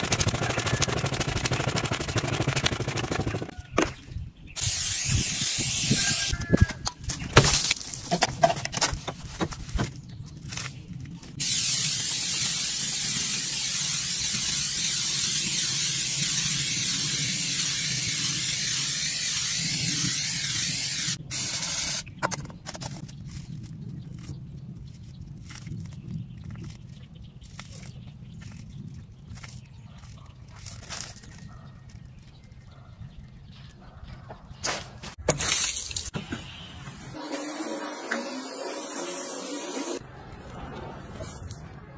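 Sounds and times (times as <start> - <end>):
aerosol spray can hissing: 4.6 - 6.3, 11.4 - 22.0, 37.3 - 40.0.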